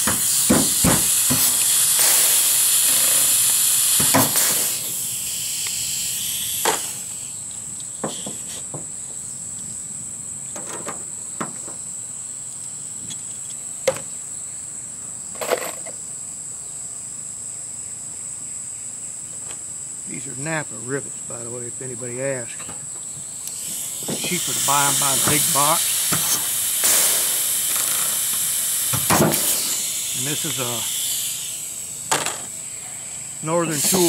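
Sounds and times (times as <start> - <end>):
loud hiss: 0.0 - 7.4, 8.0 - 8.8, 23.4 - 34.0
insect chorus: 0.0 - 34.0
riveting clicks and taps: 22.6 - 27.0.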